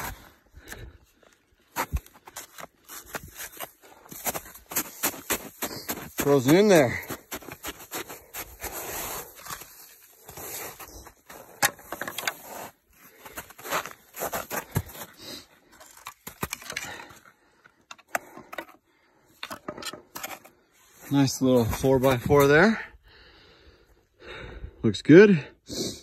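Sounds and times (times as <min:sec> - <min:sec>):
footsteps crunching on snow: 0:01.7 - 0:11.6, 0:12.3 - 0:16.0, 0:20.8 - 0:22.8.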